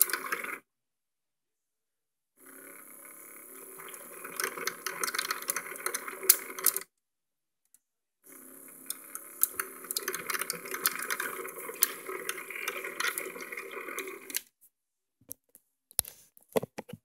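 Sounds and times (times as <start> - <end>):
toy motor whirring and rattling: 0.0 - 0.6, 2.4 - 6.9, 8.3 - 14.5.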